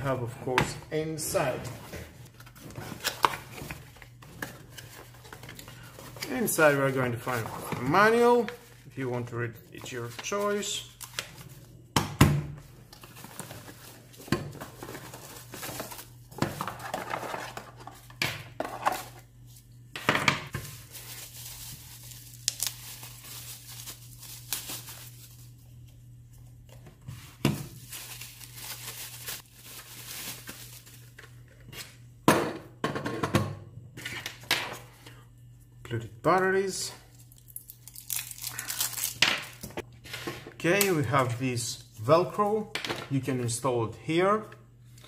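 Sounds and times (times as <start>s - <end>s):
plastic packaging crinkling: 12.9s - 18.0s, 20.5s - 25.9s, 27.6s - 31.4s, 37.2s - 39.7s.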